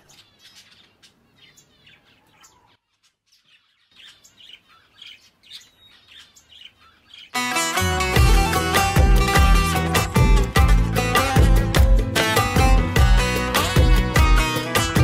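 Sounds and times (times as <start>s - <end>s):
small birds chirping: 0.0s - 7.6s.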